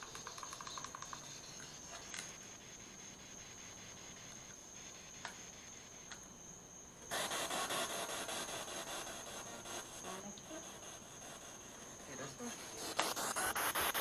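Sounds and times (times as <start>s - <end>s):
radio scanner choppy static: 12.1s - 14.0s.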